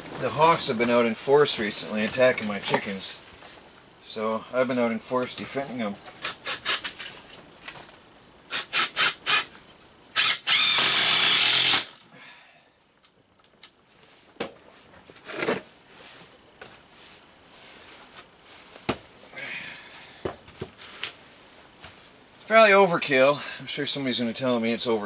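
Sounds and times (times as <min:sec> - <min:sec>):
cordless drill whine: 0:08.5 - 0:09.5, 0:10.1 - 0:12.0.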